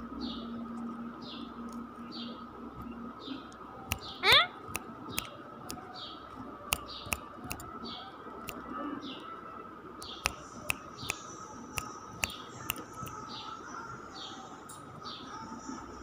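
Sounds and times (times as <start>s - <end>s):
faint high hum: 0.0s - 16.0s.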